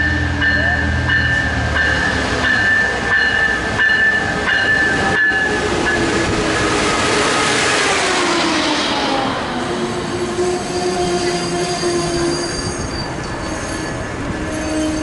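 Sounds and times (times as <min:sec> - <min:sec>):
train wheels rumbling on rails: 0:00.0 - 0:15.0
train brakes squealing: 0:10.4 - 0:15.0.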